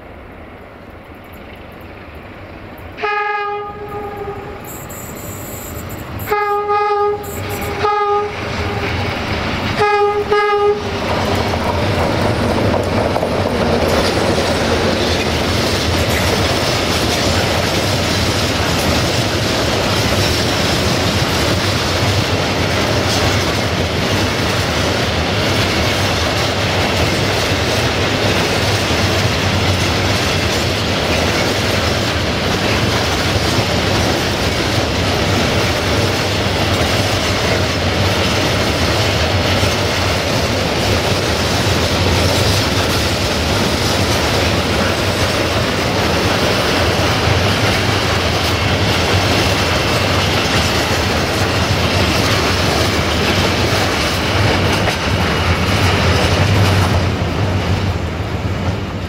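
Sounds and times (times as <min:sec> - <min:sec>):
locomotive horn blasts: 0:03.0 - 0:09.0, 0:09.8 - 0:11.0.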